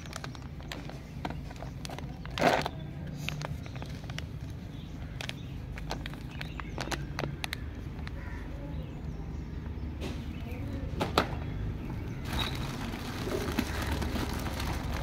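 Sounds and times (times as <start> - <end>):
plastic bag rustling: 0.0 - 8.1, 12.2 - 15.0
sharp clicks of packaging: 0.0 - 8.2, 12.2 - 15.0.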